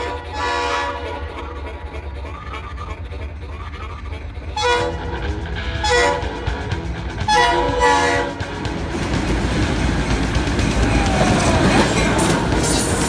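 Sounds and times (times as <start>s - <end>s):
locomotive air horn blasts: 0.0s - 1.9s, 4.5s - 8.6s
diesel engine rumble: 0.0s - 13.0s.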